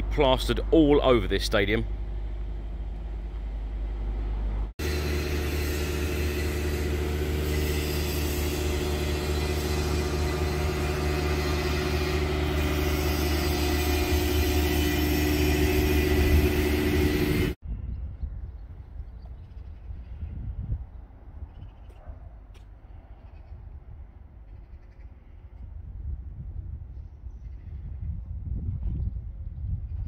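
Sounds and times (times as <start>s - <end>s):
low outdoor rumble: 0.0s - 17.6s.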